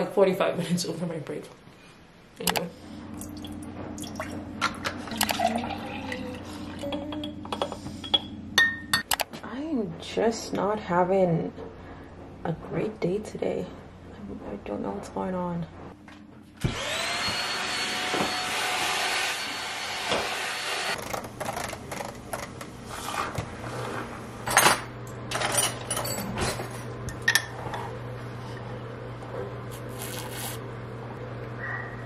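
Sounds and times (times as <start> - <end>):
low steady hum: 0.0 - 16.6
vacuum cleaner whining: 16.6 - 21.0.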